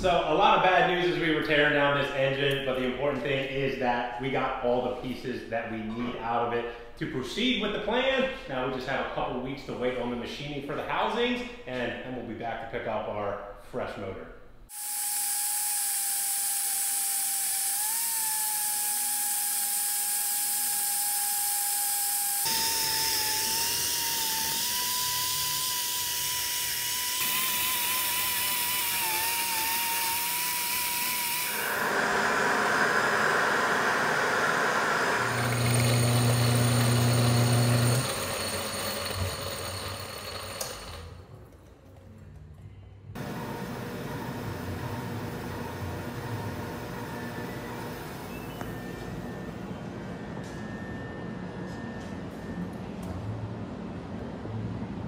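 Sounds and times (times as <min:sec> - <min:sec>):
power tools whining: 0:14.7 - 0:41.3, 0:43.2 - 0:52.5.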